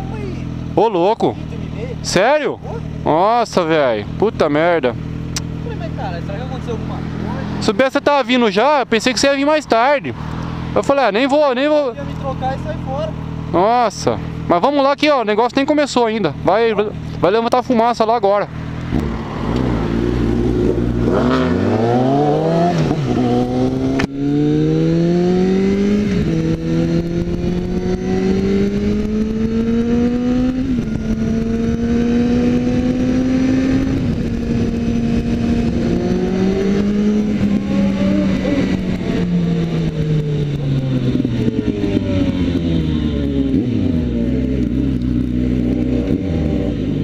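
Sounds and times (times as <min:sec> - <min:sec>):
motorcycle engine accelerating: 0:00.0 - 0:47.0
second motorcycle engine revving: 0:00.0 - 0:47.0
wind noise: 0:18.9 - 0:47.0.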